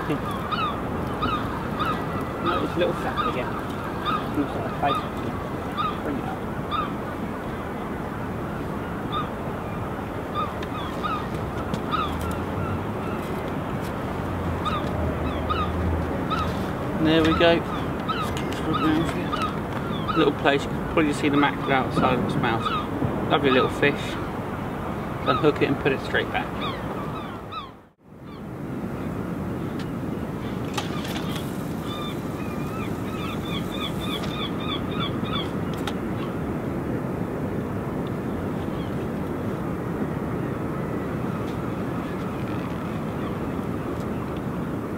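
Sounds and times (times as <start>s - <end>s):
birds calling sharply: 0.0s - 7.0s, 9.1s - 13.8s, 14.6s - 24.4s, 25.0s - 28.4s, 29.8s - 36.4s.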